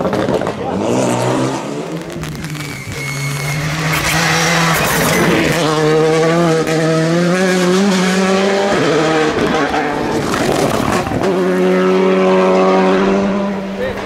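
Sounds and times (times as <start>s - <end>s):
rally car engine at high revs: 0.0s - 14.0s.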